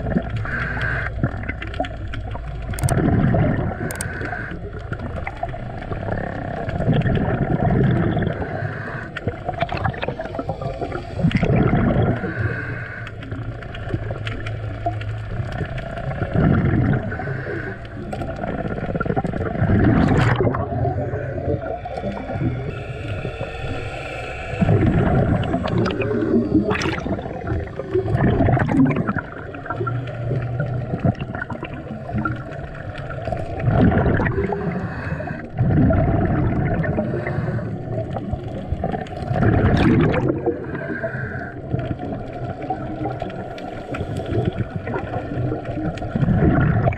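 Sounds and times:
diver breathing through regulator: 0.0s - 1.6s, 2.8s - 5.0s, 7.8s - 13.8s, 15.9s - 30.8s, 31.9s - 38.3s, 40.2s - 42.0s, 43.4s - 45.3s
rush of exhaled bubbles: 0.0s - 46.9s.

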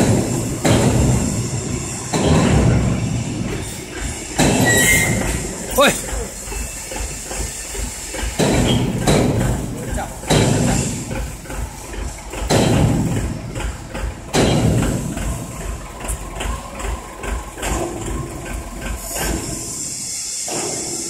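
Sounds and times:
loud bangs: 8.2s - 11.6s, 12.3s - 15.4s.

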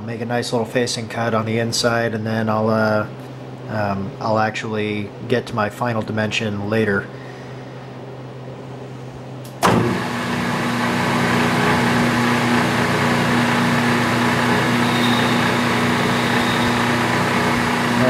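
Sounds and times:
lathe spinning up and running: 9.5s - 18.0s.

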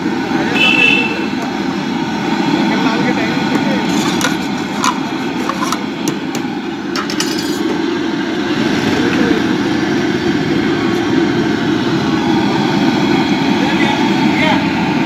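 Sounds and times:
street noise: 0.0s - 15.0s.

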